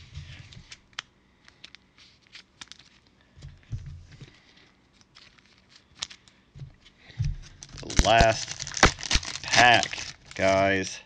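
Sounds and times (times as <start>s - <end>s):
cards clicking and rustling: 0.2s - 6.4s, 7.4s - 10.6s
soft low thumps: 6.6s - 7.9s.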